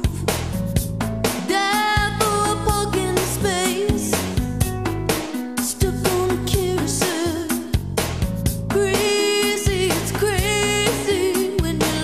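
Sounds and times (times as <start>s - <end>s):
sustained bass notes: 0.0s - 7.0s, 7.8s - 9.0s
drum hits: 0.0s - 12.0s.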